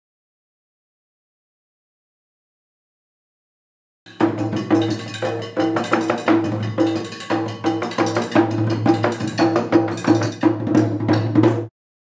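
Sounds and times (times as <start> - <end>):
sharp percussive strikes: 4.1 - 11.7.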